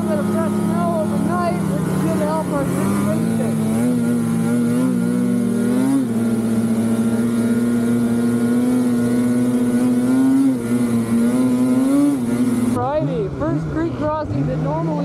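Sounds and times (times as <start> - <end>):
snowmobile engine running: 0.0 - 15.0.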